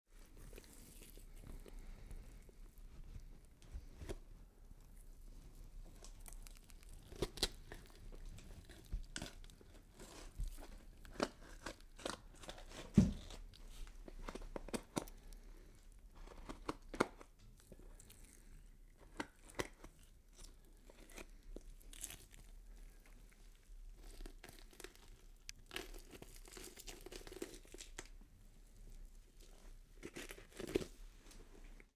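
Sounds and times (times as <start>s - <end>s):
skin tearing and crackling: 0.4s - 4.2s, 5.8s - 13.6s, 16.2s - 28.2s, 30.0s - 30.9s.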